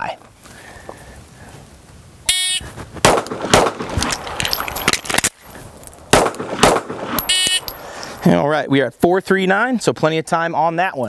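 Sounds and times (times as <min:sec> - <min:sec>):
shot timer beep: 0:02.3 - 0:02.6, 0:07.2 - 0:07.7
pistol shots: 0:03.0 - 0:05.3, 0:06.1 - 0:07.8.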